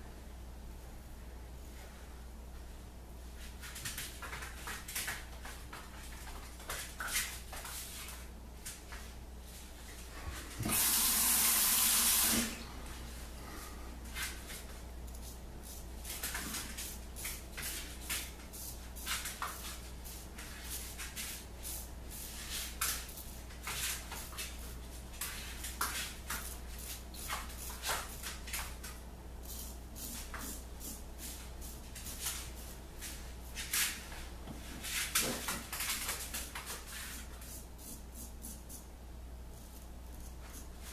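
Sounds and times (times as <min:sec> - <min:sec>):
razor scraping stubble: 0:39.6 - 0:40.9.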